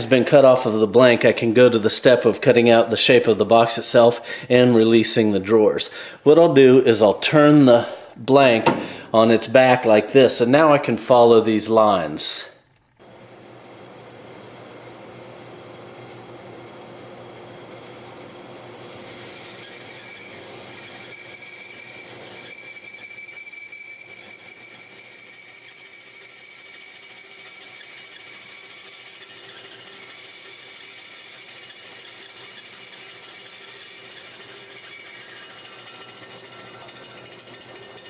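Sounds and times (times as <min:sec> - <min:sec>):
band saw cutting wood: 0:16.3 - 0:38.0
high squeal: 0:19.2 - 0:38.0.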